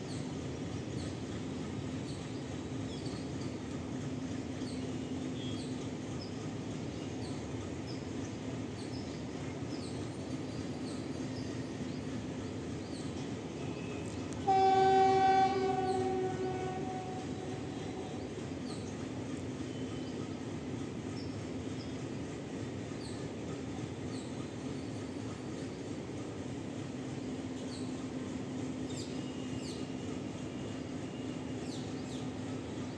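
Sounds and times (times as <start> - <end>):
train horn blast: 13.7 - 18.3.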